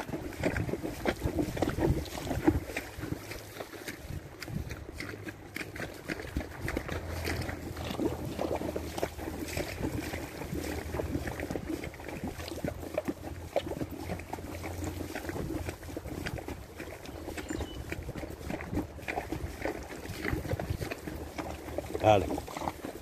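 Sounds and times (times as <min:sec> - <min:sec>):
hooves splashing in water: 0:00.0 - 0:23.0.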